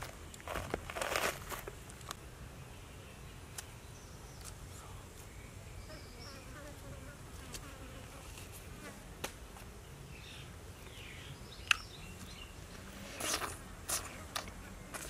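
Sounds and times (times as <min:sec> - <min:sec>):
flying insect buzzing: 0:05.8 - 0:09.7.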